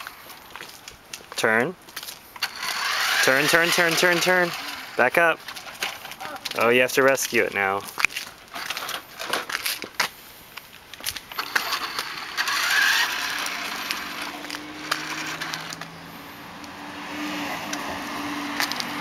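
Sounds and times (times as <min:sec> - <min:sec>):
toy truck motor whirring: 0:02.4 - 0:06.3, 0:11.3 - 0:16.0
toy truck knocks and clicks: 0:11.4 - 0:15.9.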